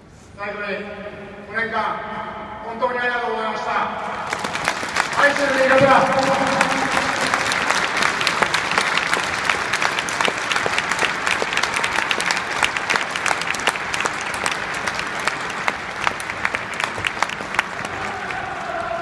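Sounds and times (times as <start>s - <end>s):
crowd applauding: 4.2s - 19.0s.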